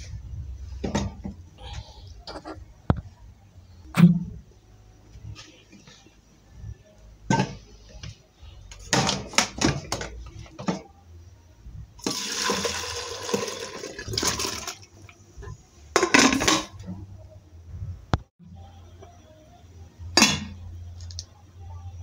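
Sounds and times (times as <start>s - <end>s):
metal pots clanking: 15.9s - 17.0s.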